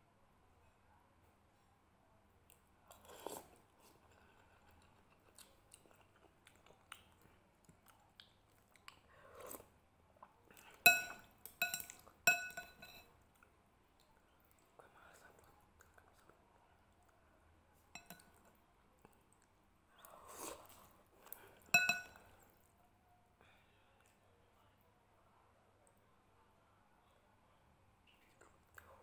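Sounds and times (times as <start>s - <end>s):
chewing and mouth sounds: 2.5s - 12.2s, 13.3s - 17.2s, 28.1s - 29.0s
metal spoon striking ceramic bowl: 10.9s - 13.1s, 18.0s - 18.2s, 21.7s - 22.2s.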